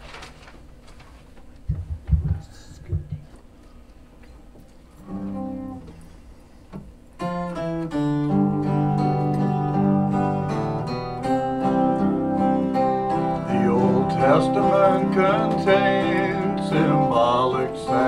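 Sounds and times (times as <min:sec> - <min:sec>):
acoustic guitar strumming: 0:05.0 - 0:06.6, 0:07.2 - 0:18.0.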